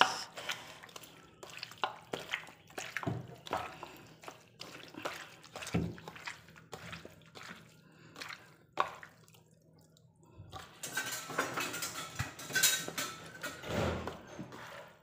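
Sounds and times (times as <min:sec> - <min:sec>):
wet squelching of meat kneaded: 0:00.0 - 0:11.3.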